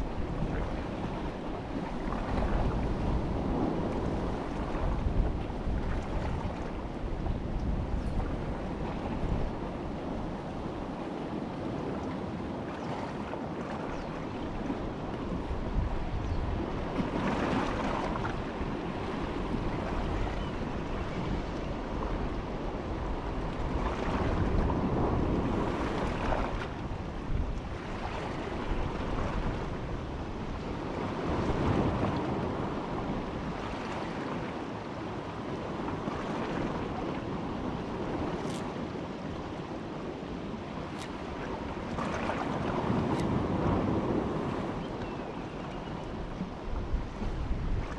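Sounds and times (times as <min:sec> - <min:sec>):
strong wind buffeting microphone: 0:00.0 - 0:12.6, 0:14.5 - 0:33.7, 0:36.5 - 0:47.9.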